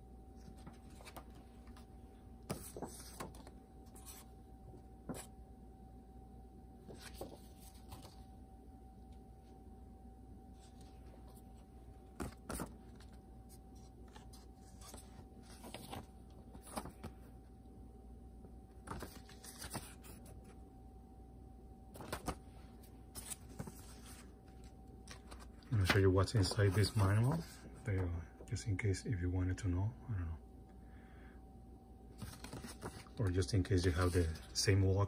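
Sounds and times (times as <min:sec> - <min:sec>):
faint steady tone: 0:00.0 - 0:35.0
paper rustling: 0:00.4 - 0:01.9, 0:02.5 - 0:04.3, 0:06.9 - 0:08.3, 0:12.1 - 0:17.2, 0:18.8 - 0:20.4, 0:22.0 - 0:28.1, 0:32.2 - 0:34.8.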